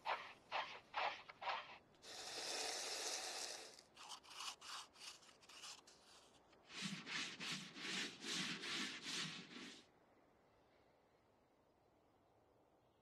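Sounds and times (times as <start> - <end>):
sanding wood by hand: 4.0 - 9.8.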